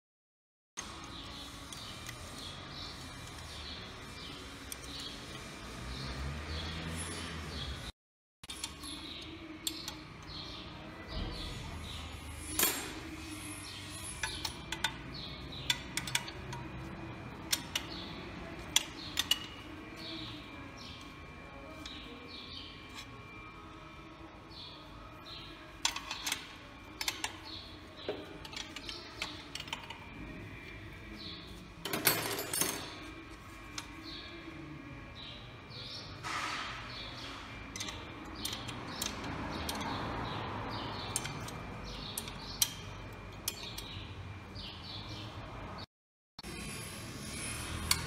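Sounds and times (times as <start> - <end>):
small birds chirping: 36.9 - 45.4.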